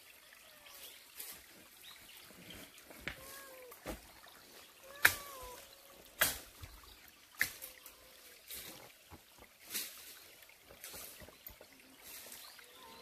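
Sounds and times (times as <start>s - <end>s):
cat meowing: 4.8s - 5.7s.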